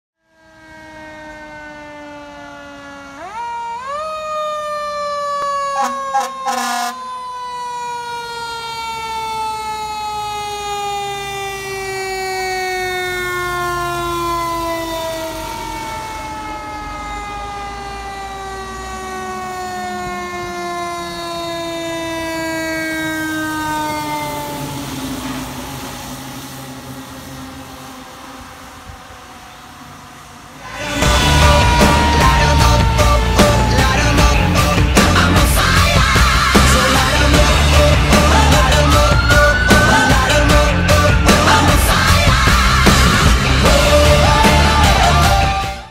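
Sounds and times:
short sharp siren blasts: 0.2 - 35.2
mechanical siren winding down: 0.2 - 45.9
low engine rumble: 23.6 - 45.6.

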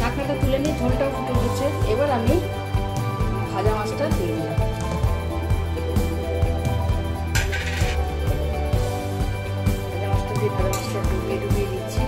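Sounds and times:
music with steady beat: 4.2 - 12.0.

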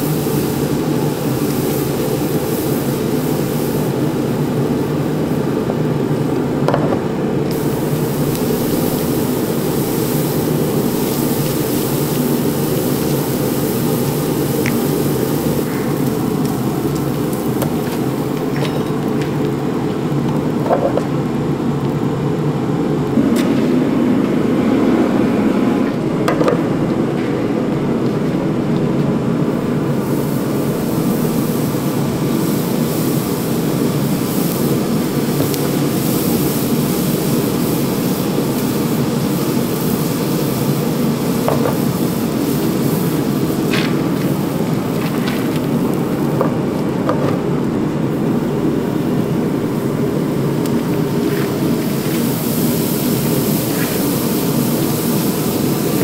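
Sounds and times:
gas burner roaring: 0.0 - 56.0.

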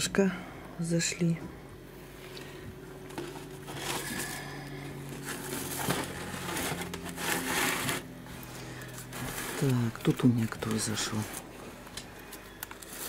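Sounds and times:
steady low hum: 0.0 - 13.0
plastic containers rustling: 2.9 - 13.0.

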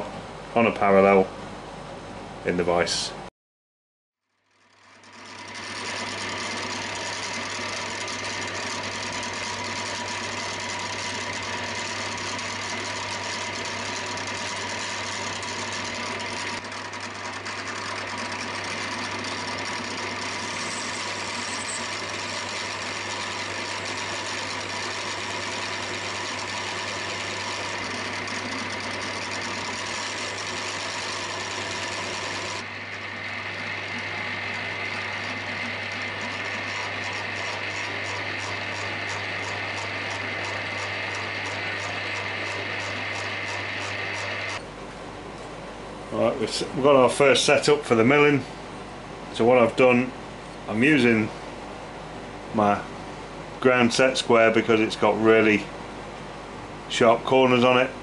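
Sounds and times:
milling machine spindle humming: 4.3 - 45.6.

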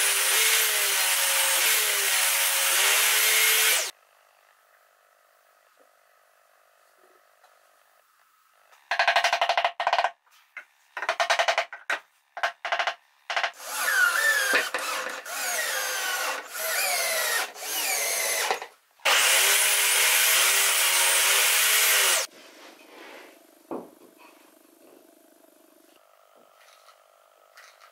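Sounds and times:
table saw cutting board: 13.5 - 22.3.

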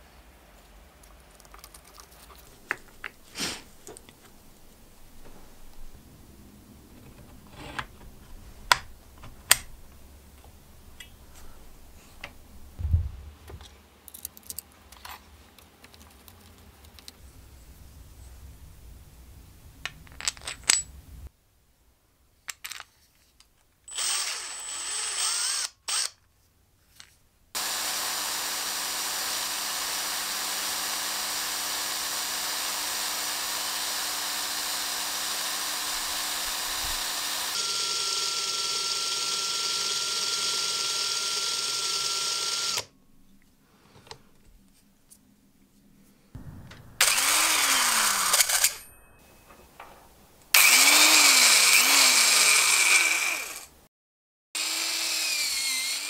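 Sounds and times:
clicks of small parts handled: 13.5 - 17.2, 22.5 - 23.7
electric drill humming: 23.9 - 26.1, 27.6 - 42.9, 47.0 - 48.8, 50.5 - 53.7, 54.6 - 56.0.

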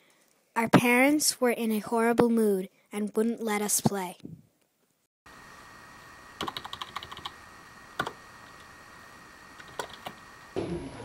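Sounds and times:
faint electrical whine: 4.5 - 11.0
typing on computer keyboard: 6.4 - 7.3, 9.6 - 10.1.

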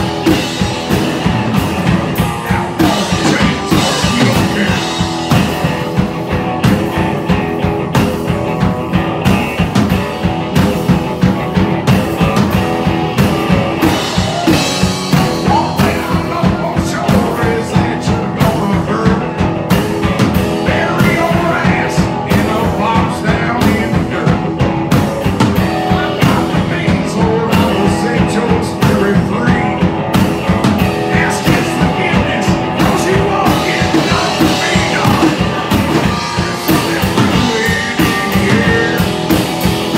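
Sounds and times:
drum kit beat: 0.0 - 39.9
electric guitar: 0.0 - 39.9.

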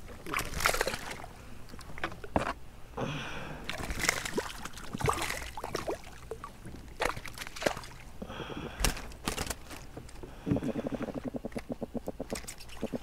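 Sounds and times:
water sloshing around kayak: 3.7 - 8.2.

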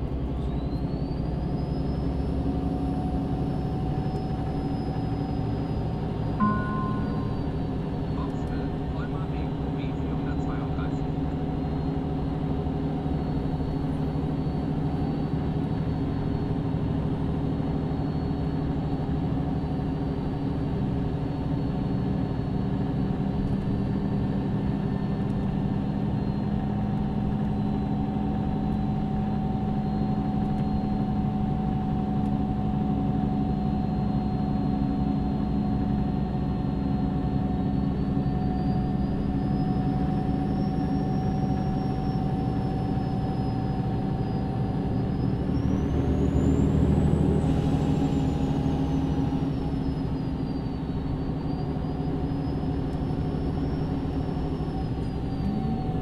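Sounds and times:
bus diesel engine running: 0.0 - 56.0
high whine: 6.4 - 9.5.

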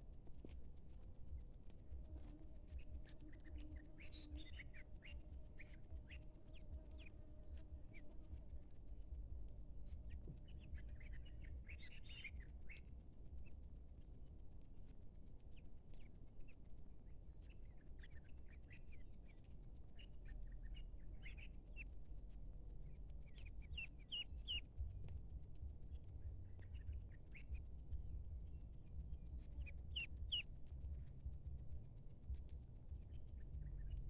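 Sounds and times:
pulsing insect trill: 0.0 - 34.0
ducklings peeping: 22.9 - 24.9, 25.8 - 28.1, 28.7 - 30.8.

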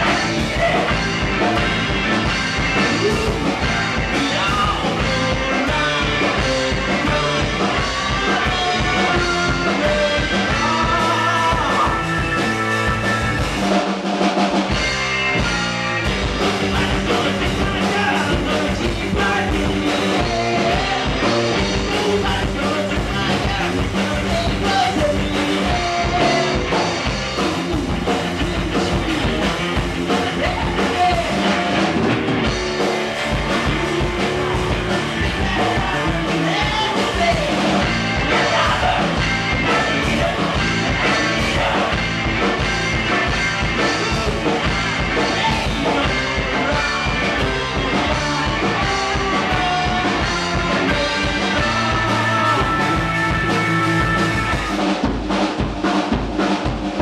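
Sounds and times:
drums: 0.0 - 57.0
electric guitars: 0.0 - 57.0
person singing: 2.8 - 13.4, 16.5 - 29.5, 33.5 - 42.6, 43.8 - 54.8.

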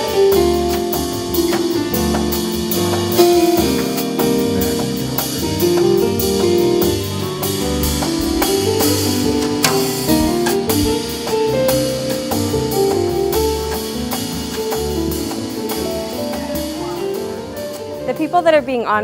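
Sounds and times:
plucked double bass: 0.0 - 18.4
drum kit with cymbal strokes: 0.0 - 19.0
keyboard chords: 0.0 - 19.0.

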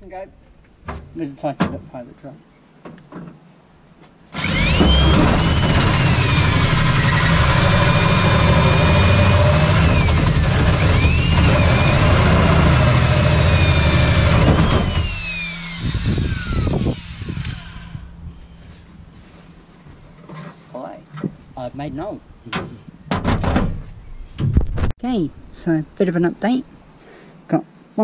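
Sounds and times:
power drill with hole saw cutting metal: 4.3 - 18.2.

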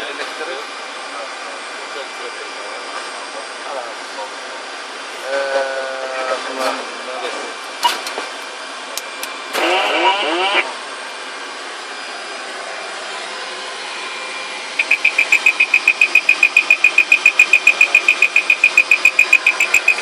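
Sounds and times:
steady background noise: 14.3 - 20.0
rapid high-pitched warning beeps: 14.8 - 20.0.

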